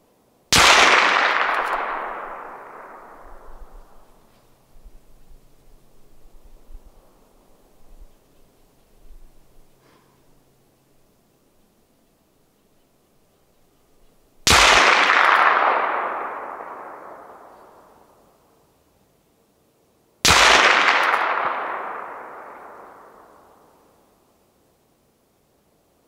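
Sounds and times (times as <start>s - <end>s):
rifle shots with rolling echo: 0.5s - 7.3s, 14.4s - 18.5s, 20.2s - 24.2s.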